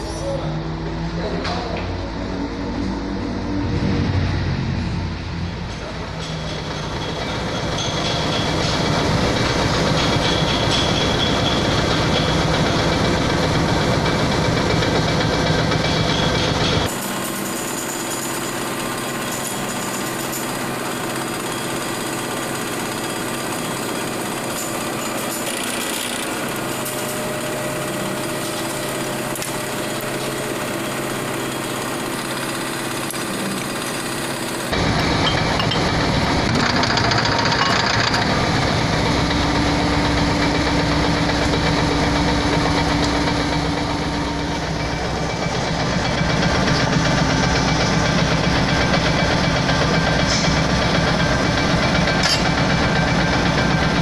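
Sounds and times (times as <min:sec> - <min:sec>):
deep engine rumble: 0:00.0 - 0:07.7
machine engine running: 0:00.0 - 0:54.0.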